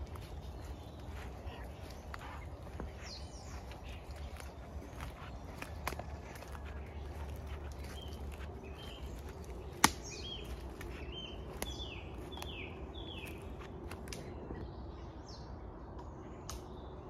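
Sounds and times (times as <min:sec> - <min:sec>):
songbirds calling: 0:00.0 - 0:17.0
sharp crack: 0:09.7 - 0:10.3.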